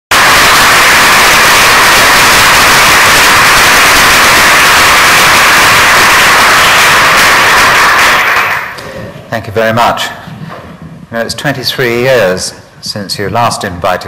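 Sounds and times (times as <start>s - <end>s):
audience applause: 0.1s - 8.8s.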